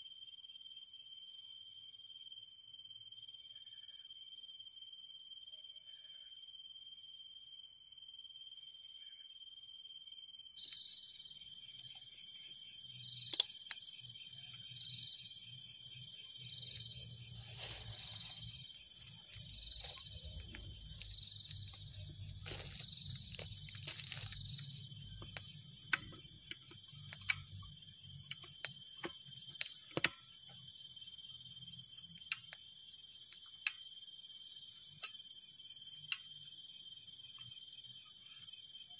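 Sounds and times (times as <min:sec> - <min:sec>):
crickets and insects trilling: 0:10.6 - 0:38.9
campfire crackling and popping: 0:13.2 - 0:13.9, 0:18.6 - 0:30.1.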